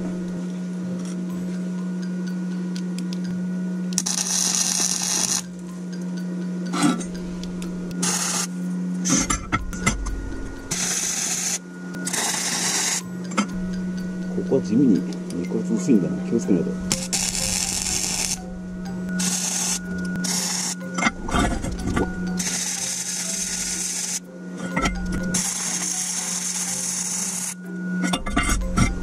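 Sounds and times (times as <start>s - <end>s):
steady low hum: 0.0s - 29.0s
welding arc bursts: 4.0s - 5.5s, 8.0s - 8.5s, 10.7s - 13.0s, 16.9s - 18.4s, 19.2s - 20.8s, 22.4s - 24.2s, 25.4s - 27.6s.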